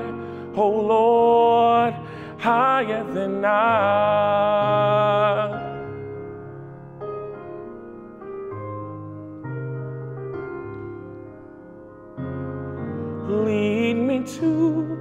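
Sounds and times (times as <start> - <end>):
keyboard playing soft chords: 0.0 - 15.0.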